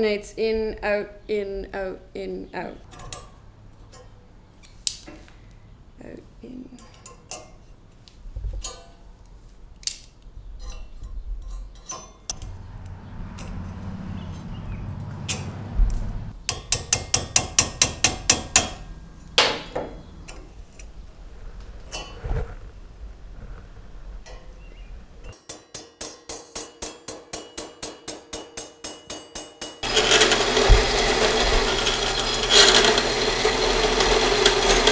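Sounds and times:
small metal clicks and scrapes: 29.8 - 34.9.

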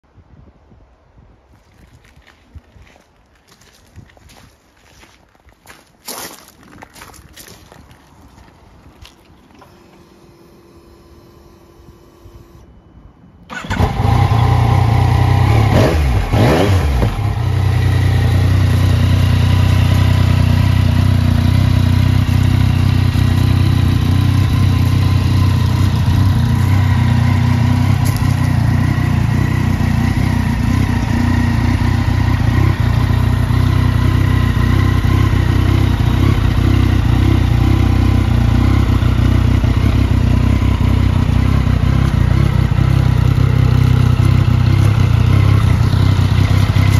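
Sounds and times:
motorcycle engine starting and idling: 9.4 - 12.8, 13.4 - 46.9
engine revving: 13.5 - 46.9.

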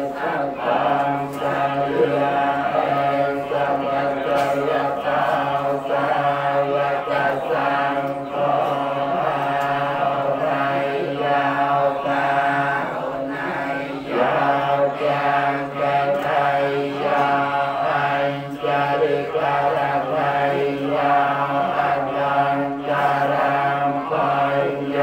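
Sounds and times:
monks chanting in unison: 0.0 - 25.0.

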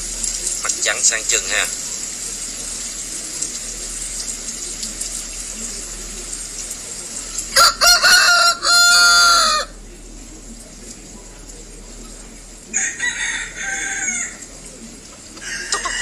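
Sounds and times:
rooster crowing: 7.5 - 9.8, 12.7 - 14.5, 15.3 - 16.0.

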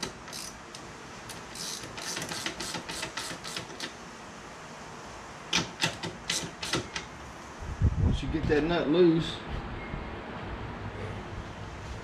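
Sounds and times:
ratchet wrench clicking: 0.0 - 4.0, 5.5 - 7.1.

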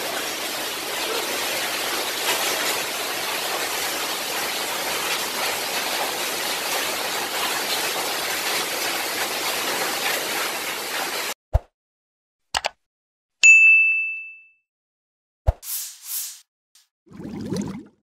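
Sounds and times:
heavy rain and hail: 0.0 - 11.3.

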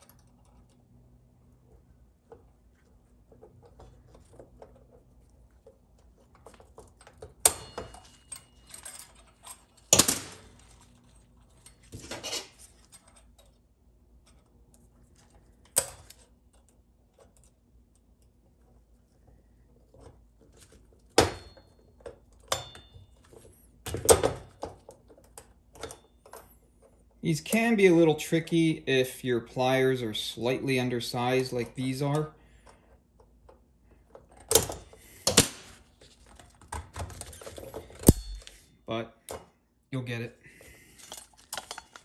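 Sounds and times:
metal clicks of pliers and ring: 22.5 - 23.0, 38.0 - 38.6.

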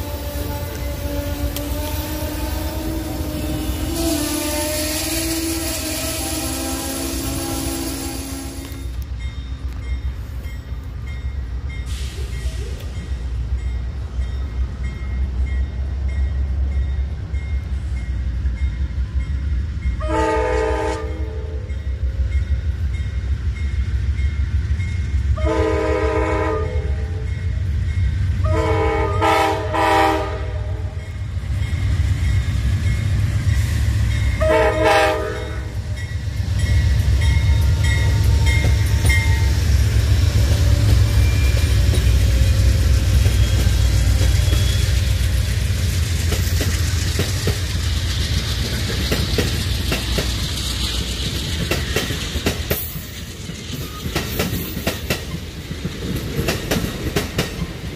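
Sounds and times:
train air horn blasts: 0.0 - 9.0, 20.0 - 21.7, 25.4 - 27.3, 28.4 - 31.0, 34.4 - 36.0
train rumbling past: 0.0 - 57.9.

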